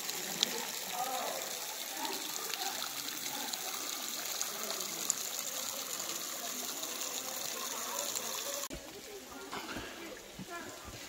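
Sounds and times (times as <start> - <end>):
waterfall splashing: 0.0 - 8.8.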